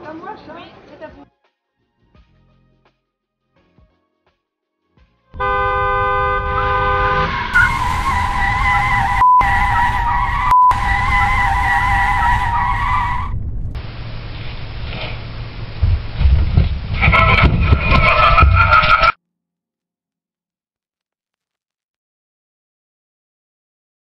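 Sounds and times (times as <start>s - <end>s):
vehicle horn blaring: 5.4s - 13.3s
road noise: 5.4s - 19.2s
tyres screeching: 17.0s - 19.2s.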